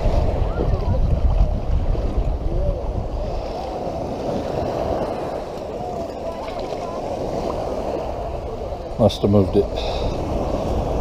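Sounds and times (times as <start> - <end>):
wind buffeting microphone: 0.0 - 11.0
seawater sloshing around legs: 3.2 - 8.3.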